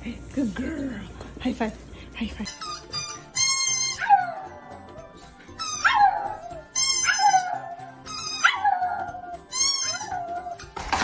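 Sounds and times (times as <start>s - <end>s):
background music: 0.0s - 11.0s
squeaky toy squeaking: 2.5s - 4.8s, 5.4s - 10.8s
dog howling: 3.8s - 5.0s, 5.6s - 10.6s.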